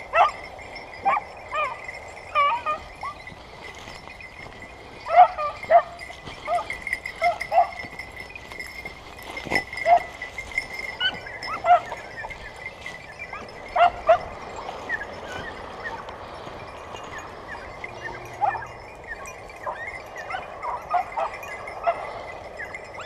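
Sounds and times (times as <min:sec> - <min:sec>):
faint high ringing: 0:00.0 - 0:23.0
dog yelping: 0:00.1 - 0:00.4, 0:01.0 - 0:03.3, 0:05.0 - 0:07.8, 0:09.8 - 0:10.2, 0:11.0 - 0:12.5, 0:13.2 - 0:16.1, 0:17.5 - 0:23.0.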